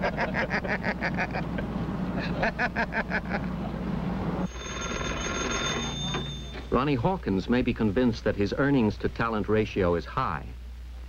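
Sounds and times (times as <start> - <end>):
man laughing hard: 0.0 - 3.6
electric bell ringing: 4.4 - 7.0.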